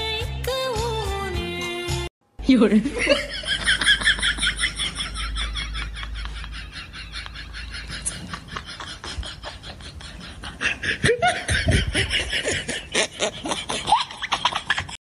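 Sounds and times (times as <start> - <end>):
person laughing in breathy bursts: 3.0 - 15.0.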